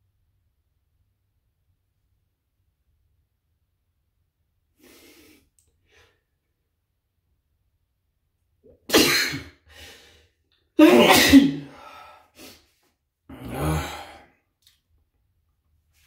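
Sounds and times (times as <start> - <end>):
man sneezing: 8.9 - 9.6, 10.8 - 12.6.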